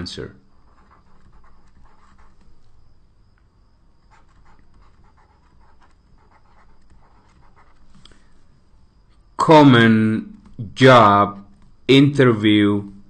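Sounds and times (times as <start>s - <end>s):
pen scratching on paper: 0.5s - 2.5s, 4.1s - 8.0s.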